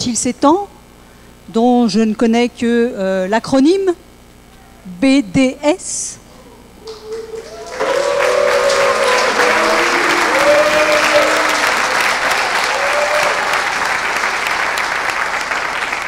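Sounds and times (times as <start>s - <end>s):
audience applauding: 6.8s - 16.0s.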